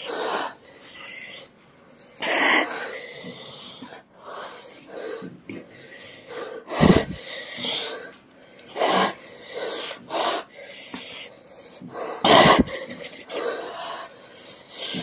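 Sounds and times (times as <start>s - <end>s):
people breathing heavily and sniffing: 0.0s - 15.0s.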